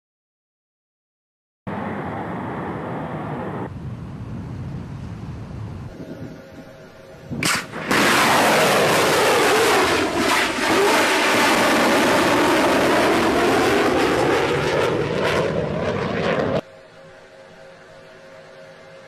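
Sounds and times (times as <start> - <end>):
loud jet roar: 1.7 - 3.7, 7.3 - 16.6.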